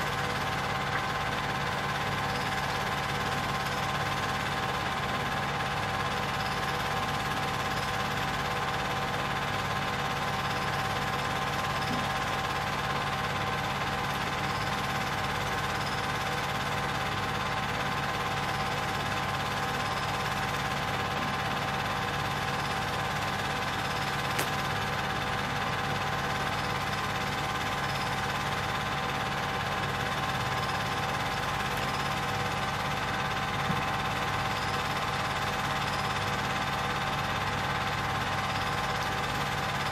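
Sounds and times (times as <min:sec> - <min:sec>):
film projector running: 0:00.0 - 0:39.9.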